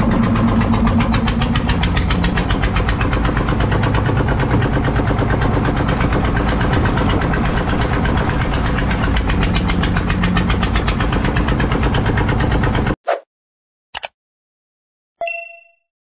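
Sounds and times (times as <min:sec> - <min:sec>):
boat engine running: 0:00.0 - 0:13.0
interface sound effects: 0:15.2 - 0:15.8.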